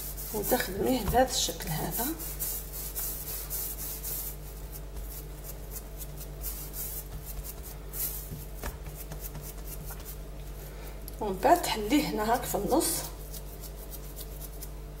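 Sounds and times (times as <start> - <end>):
hands rolling dough on stone: 0.0 - 10.7
steady low hum: 0.0 - 15.0.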